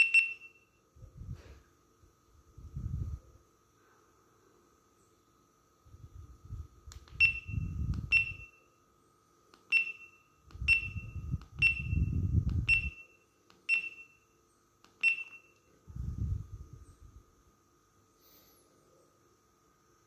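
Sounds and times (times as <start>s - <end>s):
camera beeps: 0.0s - 0.7s, 7.1s - 8.7s, 9.7s - 14.3s, 14.9s - 15.7s.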